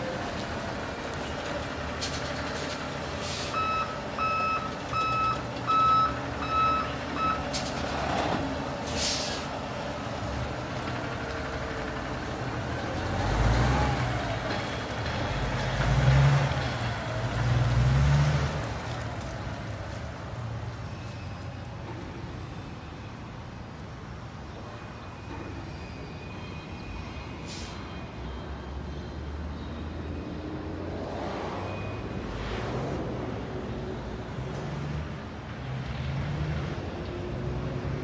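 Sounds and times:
diesel truck engine revving: 0:00.0 - 0:18.9
backup alarm beeping: 0:03.6 - 0:07.4
air brake hiss: 0:08.8 - 0:09.5, 0:27.4 - 0:27.9.

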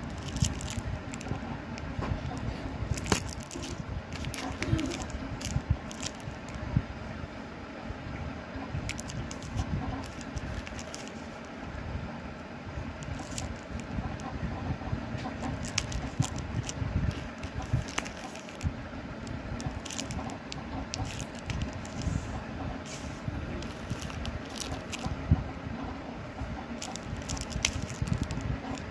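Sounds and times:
plastic cases clicking and crinkling: 0:00.0 - 0:01.9, 0:02.9 - 0:06.6, 0:08.9 - 0:11.5, 0:13.0 - 0:13.9, 0:15.4 - 0:22.2, 0:23.6 - 0:25.1, 0:26.8 - 0:28.9
low handling rumble: 0:00.0 - 0:28.9.

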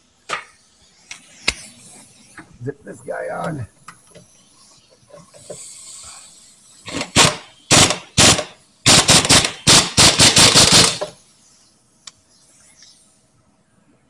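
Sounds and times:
pneumatic impact wrench bursts: 0:05.3 - 0:11.3.

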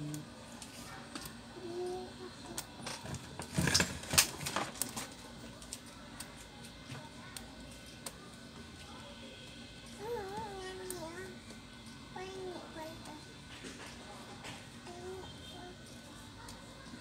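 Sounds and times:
rustling and scraping: 0:02.9 - 0:05.3.

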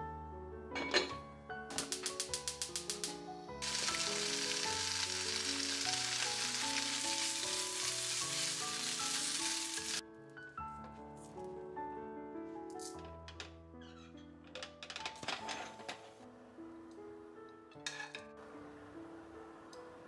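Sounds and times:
food sizzling in frying pan: 0:01.7 - 0:10.0.

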